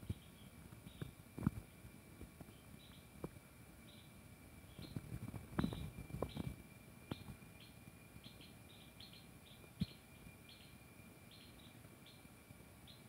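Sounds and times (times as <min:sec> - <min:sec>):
distant cicada tone: 0:00.0 - 0:13.0.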